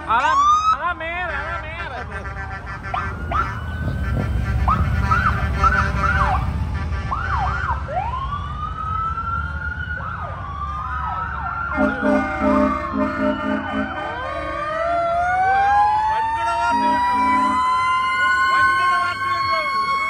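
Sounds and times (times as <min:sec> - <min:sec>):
emergency vehicle sirens: 0:00.0 - 0:20.0
engine rumble: 0:00.0 - 0:20.0
low horn blasts: 0:01.2 - 0:07.2, 0:11.7 - 0:15.0, 0:16.5 - 0:17.8.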